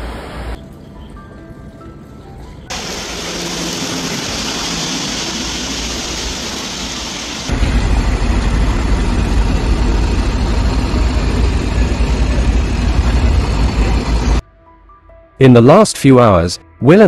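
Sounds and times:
heavy truck engine rumbling: 2.7s - 14.4s
steady hiss: 2.7s - 14.4s.

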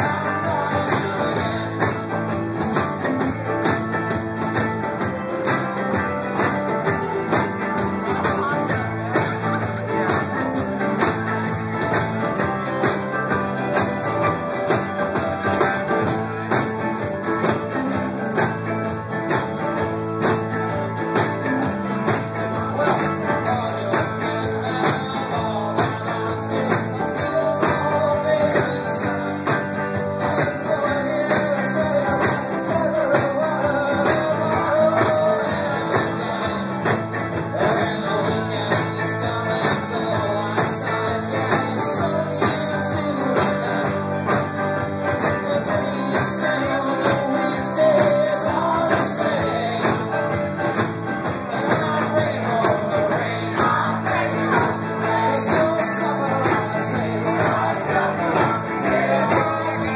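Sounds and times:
folk-rock band playing: 0.0s - 59.9s
person singing: 0.0s - 59.9s.

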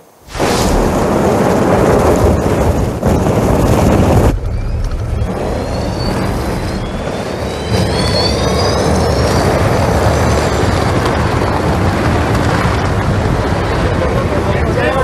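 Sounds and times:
tyres rushing through snow: 0.3s - 12.7s
electric motors whining: 4.2s - 10.4s.

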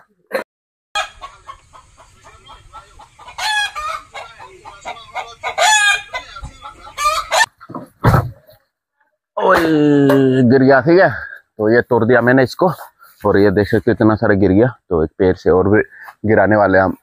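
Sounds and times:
rooster clucking: 1.0s - 8.6s
rooster loud calls: 5.1s - 6.2s.

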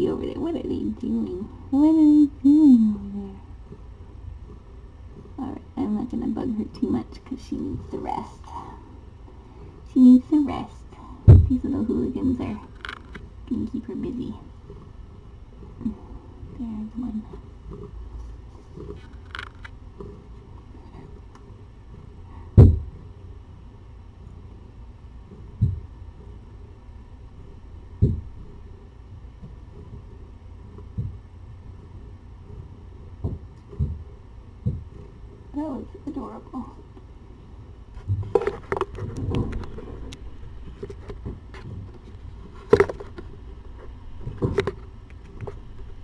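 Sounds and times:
steady low hum: 0.0s - 46.0s
heavy dull thump: 11.2s - 11.6s, 22.5s - 23.0s, 25.6s - 25.9s, 28.0s - 28.3s, 33.2s - 34.9s
knock on camera: 22.6s - 22.9s.

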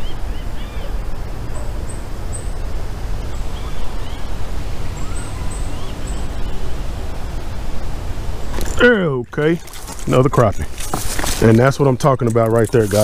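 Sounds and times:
small birds chirping: 0.0s - 7.5s.

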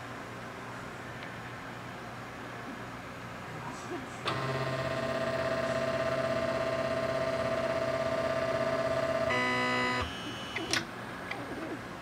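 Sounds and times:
stepper motor whining: 4.3s - 10.8s.

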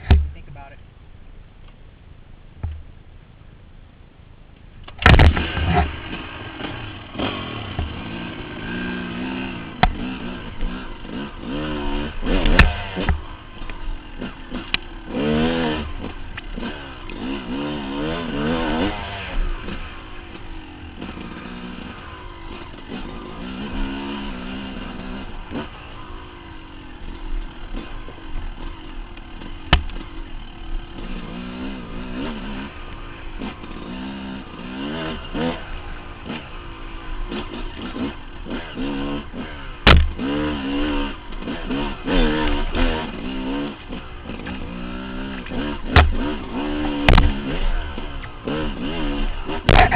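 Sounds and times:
sharp knocks: 0.0s - 0.4s, 2.6s - 2.9s, 9.8s - 10.0s, 29.7s - 30.0s, 39.8s - 40.2s, 45.9s - 46.3s, 47.0s - 47.4s
dirt bike engine revving: 5.0s - 49.9s.

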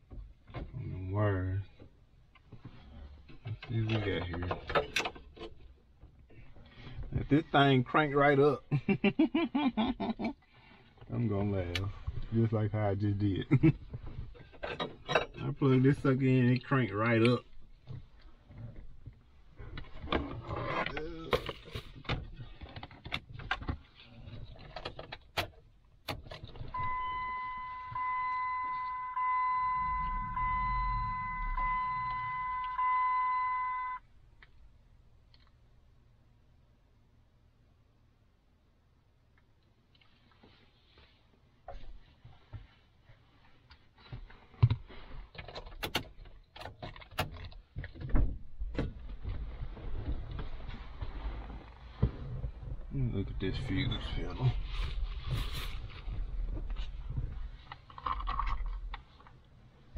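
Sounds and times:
sharp clicks and knocks: 44.2s - 49.5s.

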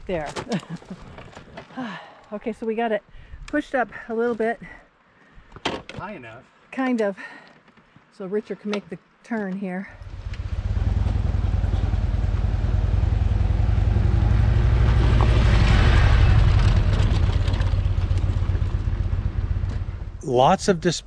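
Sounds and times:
motorcycle engine passing: 10.0s - 20.2s.

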